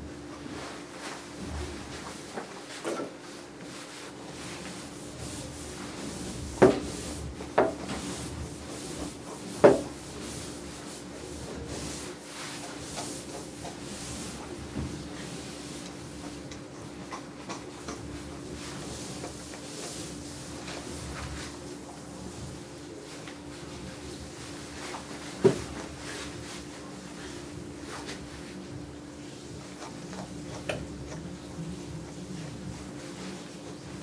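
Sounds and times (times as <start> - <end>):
steady hum: 0.0 - 34.0
brush rubbing through dog's coat: 0.5 - 16.4, 18.2 - 28.6.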